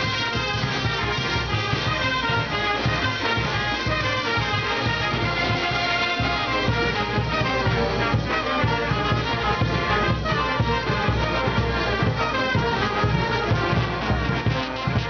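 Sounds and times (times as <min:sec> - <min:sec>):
brass band playing dance music: 0:00.0 - 0:15.0.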